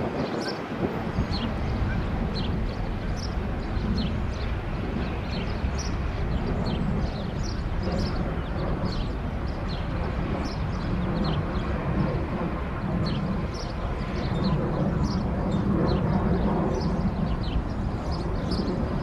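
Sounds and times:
freight train rumbling: 0:00.0 - 0:19.0
small birds chirping: 0:00.2 - 0:19.0.

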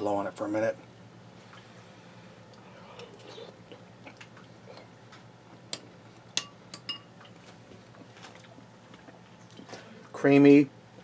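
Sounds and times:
spoon clinking on ceramic bowl: 0:06.4 - 0:07.1.

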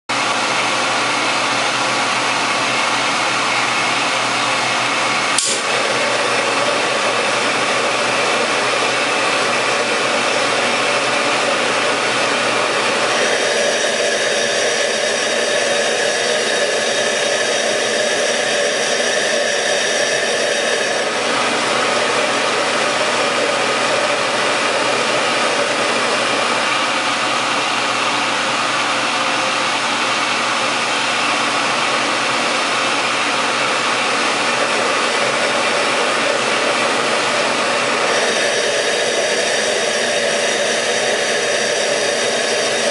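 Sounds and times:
gas burner hissing: 0:03.6 - 0:28.0, 0:30.7 - 0:42.9
sharp click: 0:05.4 - 0:05.7.

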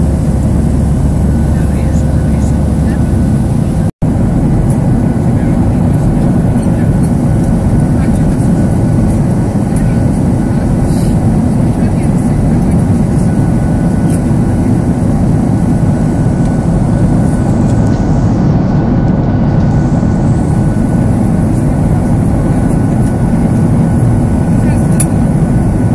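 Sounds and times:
jet engine drone: 0:00.0 - 0:25.9
rushing air: 0:00.0 - 0:25.9.

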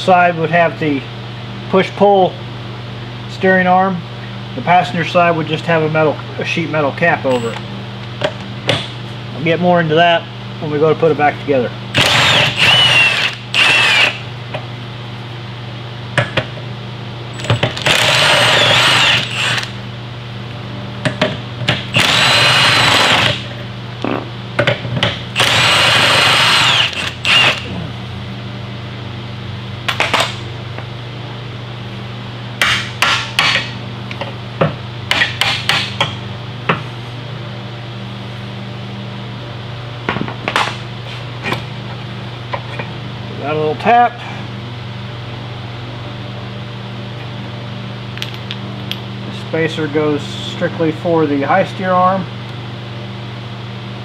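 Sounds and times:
impact wrench bursts: 0:12.0 - 0:14.2, 0:17.5 - 0:19.8, 0:21.9 - 0:23.4, 0:25.4 - 0:27.7.

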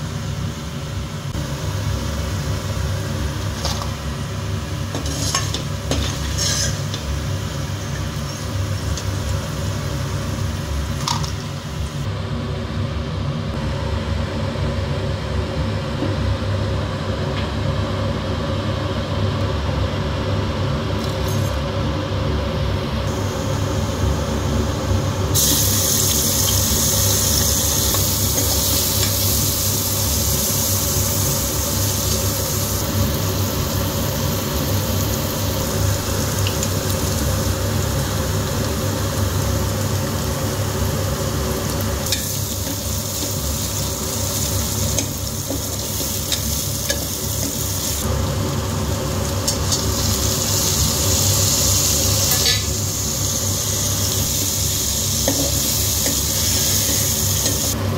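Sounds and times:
onions sizzling in hot oil: 0:01.4 - 0:12.0, 0:23.1 - 0:57.8.

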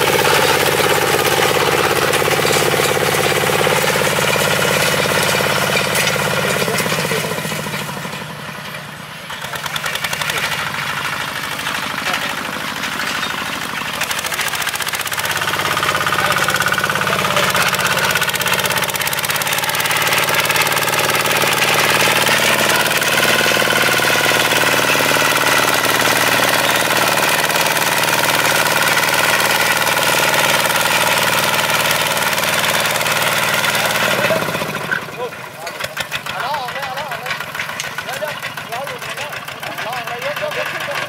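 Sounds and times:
tractor engine running under load: 0:00.0 - 0:41.0.

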